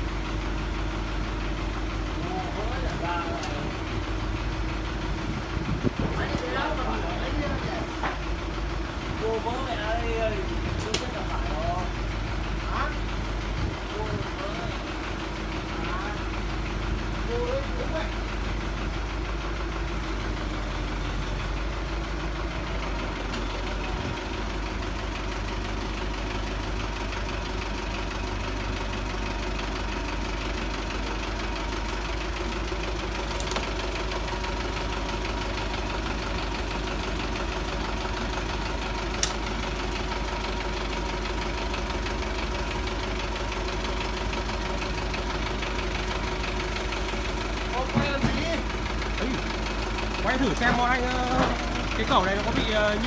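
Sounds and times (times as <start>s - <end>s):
diesel engine running: 0.0s - 53.0s
sharp clicks: 39.2s - 39.4s.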